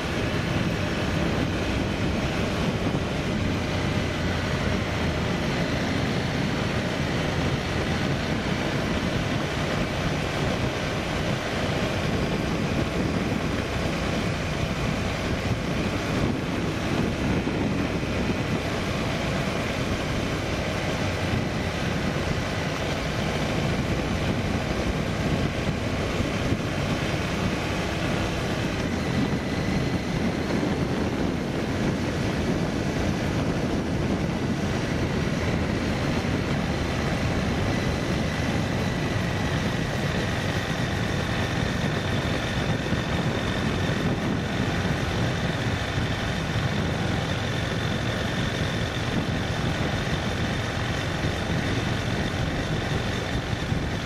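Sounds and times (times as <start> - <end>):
vehicle on rough road: 0.0 - 54.0.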